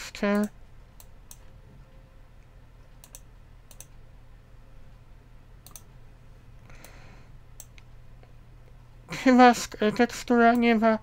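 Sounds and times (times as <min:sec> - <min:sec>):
faint low hum: 0:00.0 - 0:11.0
computer mouse clicking: 0:00.3 - 0:01.5, 0:02.4 - 0:04.0, 0:05.6 - 0:05.9, 0:07.6 - 0:07.9.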